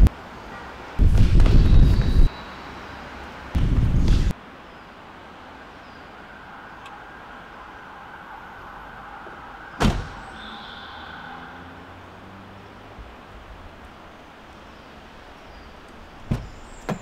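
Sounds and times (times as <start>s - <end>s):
car door shutting: 9.8s - 10.3s, 16.3s - 17.0s.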